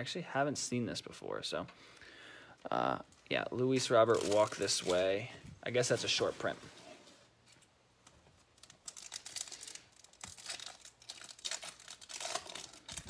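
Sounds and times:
wrapper crinkling and tearing: 3.6s - 6.2s, 8.4s - 13.0s.

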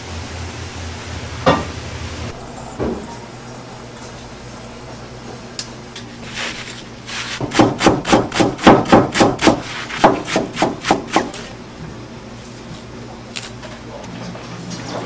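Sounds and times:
knife chopping on wooden board: 7.4s - 11.3s.

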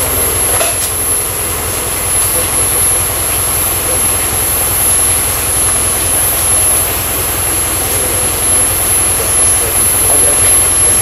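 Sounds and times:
high-pitched whine: 0.0s - 11.0s
off-road vehicle engine rumble: 0.0s - 11.0s.

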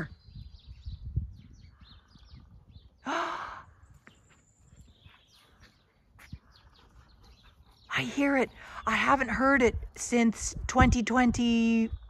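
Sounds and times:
low wind rumble: 0.0s - 12.0s
small birds chirping: 0.0s - 12.0s
breathy sound: 3.0s - 3.8s.

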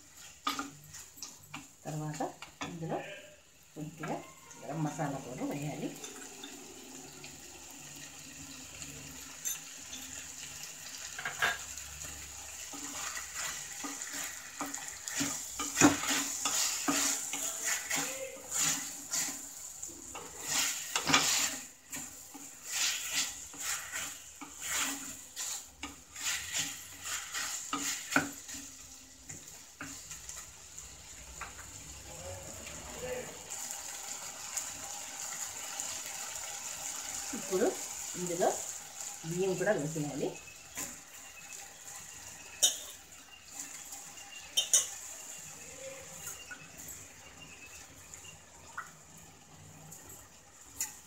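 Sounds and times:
spatula scraping metal pot: 12.6s - 28.8s, 44.3s - 45.4s.

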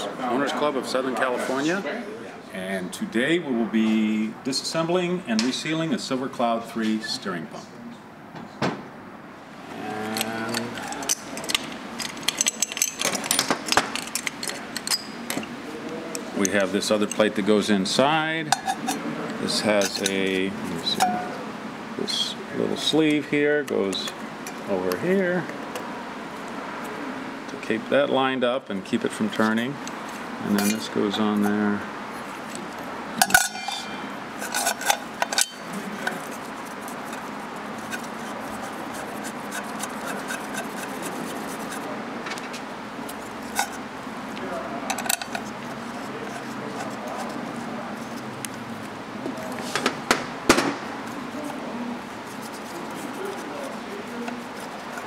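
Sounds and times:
metal clinking and scraping: 9.9s - 15.6s, 16.4s - 17.4s, 18.5s - 21.4s, 30.0s - 31.6s, 33.2s - 41.9s, 43.1s - 43.8s, 44.8s - 48.3s
small metal parts clinking: 10.0s - 15.5s, 33.2s - 38.3s.

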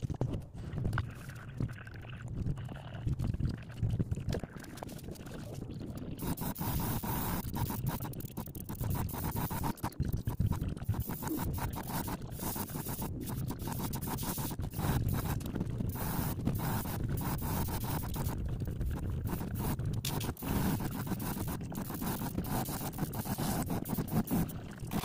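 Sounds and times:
airbrush spraying hisses: 6.2s - 8.1s, 11.0s - 18.3s, 19.3s - 24.5s.

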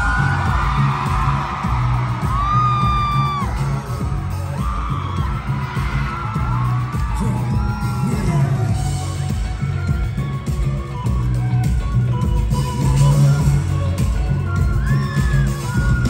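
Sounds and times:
fans screaming: 0.0s - 10.9s
live pop music with pulsing bass: 0.0s - 16.0s.

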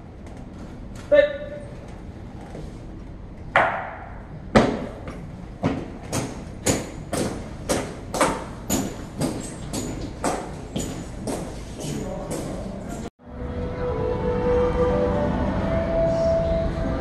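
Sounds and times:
marching steps: 4.6s - 13.1s.

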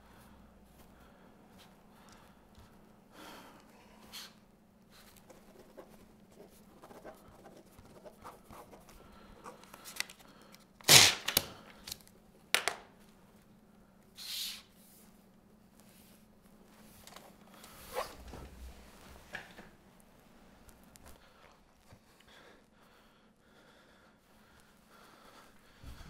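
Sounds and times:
pen scratching on paper: 5.3s - 8.9s
paper page tearing: 10.8s - 11.5s.

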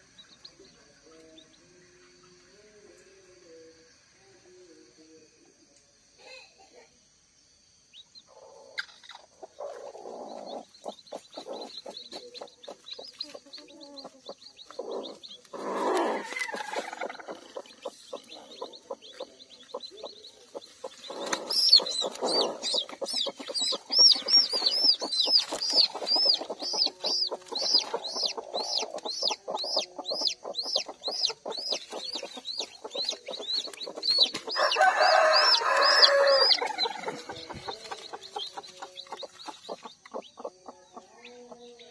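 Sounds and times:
chick peeping shrilly: 8.2s - 41.6s
hen clucking: 8.2s - 41.9s.

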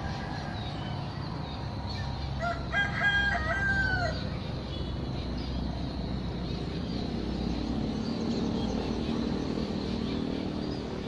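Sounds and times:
rooster crowing: 2.4s - 4.3s.

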